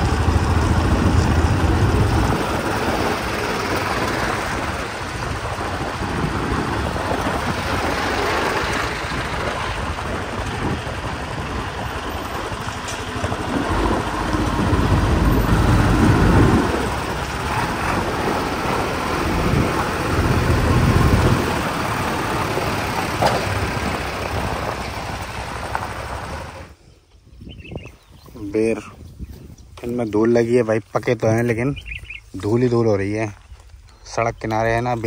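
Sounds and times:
deep rumble: 0:00.0 - 0:26.8
steady rushing noise: 0:00.0 - 0:26.8
vehicle engines running: 0:00.0 - 0:26.8, 0:29.7 - 0:35.0.

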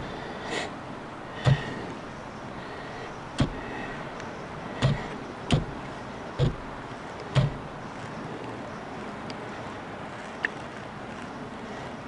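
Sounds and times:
sharp knocks: 0:01.4 - 0:01.8, 0:03.4 - 0:03.7, 0:04.8 - 0:06.7, 0:07.3 - 0:07.7.

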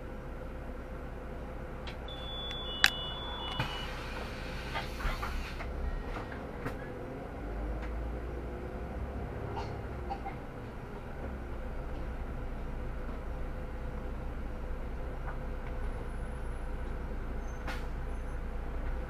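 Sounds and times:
bus drivetrain rumble: 0:00.0 - 0:19.0
short high electronic beep: 0:02.1 - 0:04.0.

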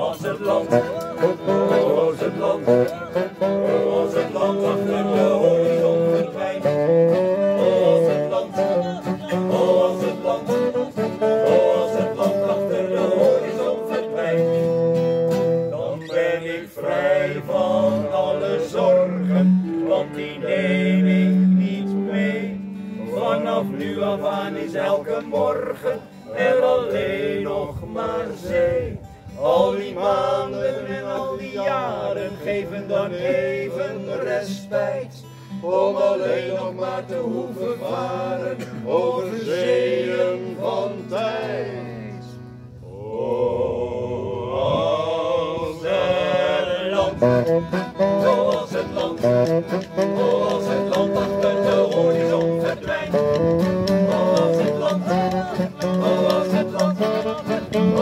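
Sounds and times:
saxophone: 0:00.0 - 0:26.3, 0:45.8 - 0:58.0
held bass notes: 0:00.0 - 0:30.3, 0:39.3 - 0:58.0
acoustic guitar: 0:00.0 - 0:43.3, 0:45.3 - 0:58.0
accordion: 0:00.0 - 0:43.5, 0:45.3 - 0:58.0
men singing in unison: 0:00.0 - 0:58.0.

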